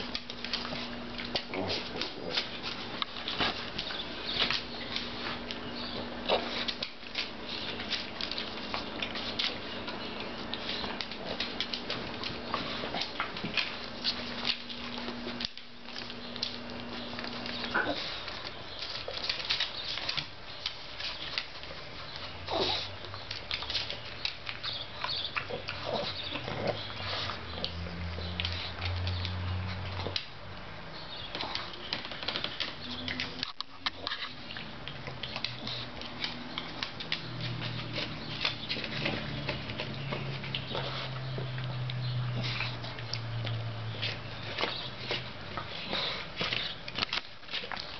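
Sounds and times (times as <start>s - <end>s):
dog snuffling: 0.0s - 30.3s, 31.0s - 47.9s
dog snorting grunts: 0.8s - 2.8s, 17.6s - 18.3s, 22.4s - 23.0s, 25.4s - 27.7s, 45.6s - 46.8s.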